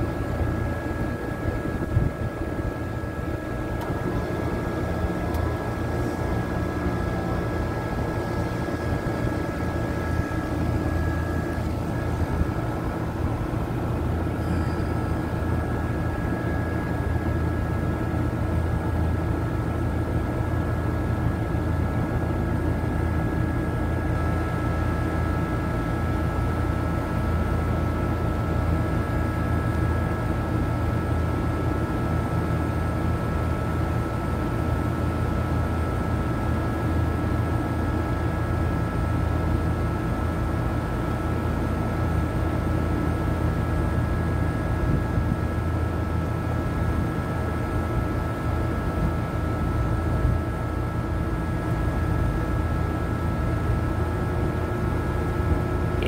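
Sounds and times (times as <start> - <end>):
faint high whine: 0.0 - 19.7
condenser fan motor humming: 0.0 - 56.0.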